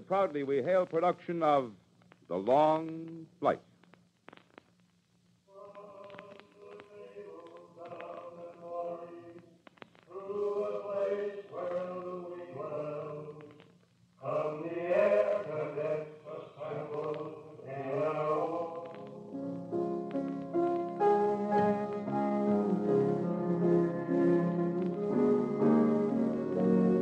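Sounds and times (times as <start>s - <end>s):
low recording hum: 0.0s - 27.0s
wordless choir singing: 5.5s - 9.4s, 10.1s - 13.5s, 14.2s - 19.6s, 21.0s - 27.0s.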